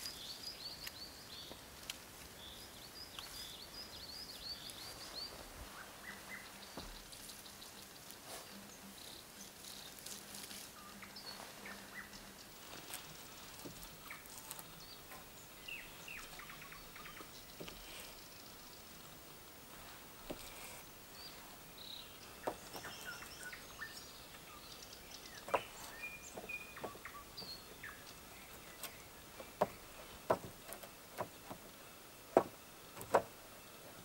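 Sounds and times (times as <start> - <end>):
songbird chirping: 0.0 - 34.0
wooden poles clicking and rustling: 12.5 - 23.6, 24.3 - 34.0.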